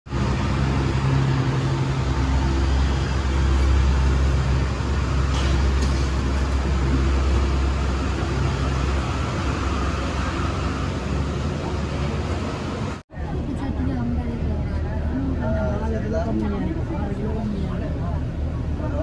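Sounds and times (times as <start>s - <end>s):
road noise: 0.0s - 19.0s
vehicle engine hum inside cabin: 0.1s - 13.0s.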